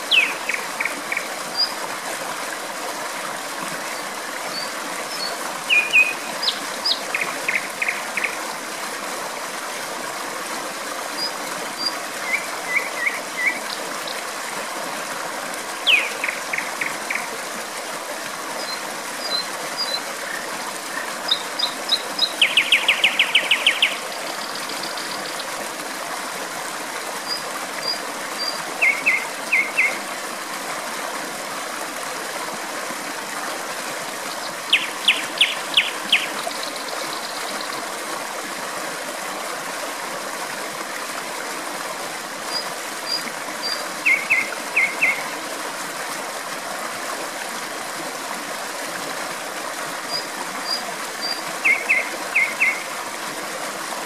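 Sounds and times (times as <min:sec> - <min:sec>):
flowing stream water: 0:00.0 - 0:54.0
nightingale singing: 0:00.1 - 0:01.7, 0:05.7 - 0:08.3, 0:15.9 - 0:16.4, 0:21.3 - 0:25.4, 0:34.7 - 0:37.7, 0:43.1 - 0:45.2, 0:50.1 - 0:52.8.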